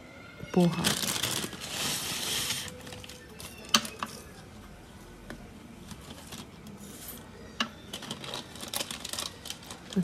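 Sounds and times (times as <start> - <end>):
plastic packet rustling: 0.6 - 3.9, 5.9 - 6.6, 7.9 - 10.0.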